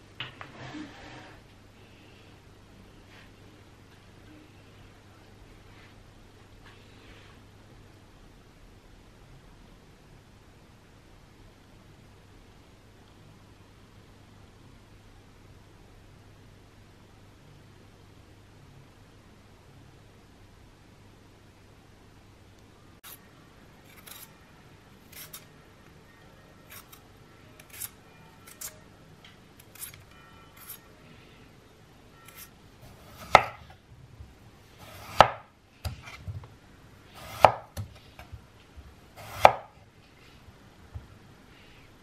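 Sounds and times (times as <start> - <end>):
peeler scraping potato: 23.8 - 24.4, 25.0 - 25.5, 26.6 - 27.0, 27.6 - 28.8, 29.6 - 30.9, 32.2 - 33.6
knife chopping on wooden board: 32.3 - 33.7, 34.8 - 36.4, 37.2 - 38.0, 39.2 - 39.7.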